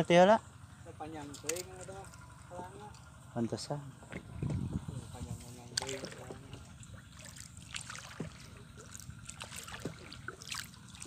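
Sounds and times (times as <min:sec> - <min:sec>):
water lapping against boat hull: 0:04.0 - 0:11.0.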